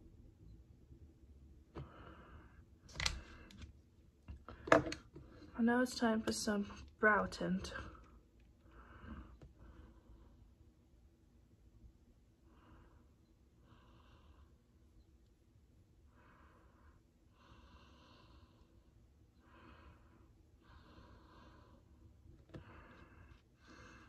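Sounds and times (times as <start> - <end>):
faint slow breathing: 1.8 - 3.6, 7.8 - 10.6, 12.4 - 15.1, 16.0 - 24.0.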